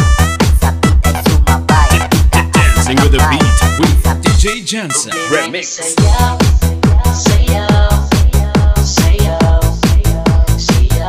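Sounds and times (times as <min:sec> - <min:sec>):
fast kick drum beat: 0:00.0 - 0:04.7, 0:06.0 - 0:11.0
electronic dance music: 0:00.0 - 0:08.3.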